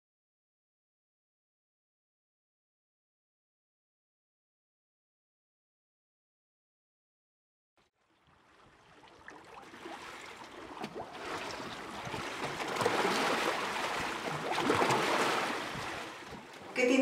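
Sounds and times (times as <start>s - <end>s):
waves lapping: 8.2s - 17.0s.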